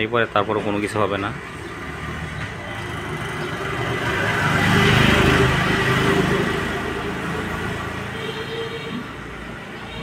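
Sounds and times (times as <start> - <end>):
vehicle engine passing by: 1.7 - 8.1.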